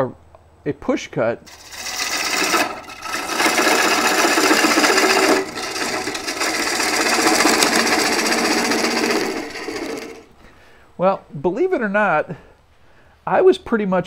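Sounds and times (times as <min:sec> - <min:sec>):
gouge cutting wood on lathe: 0:01.5 - 0:10.3.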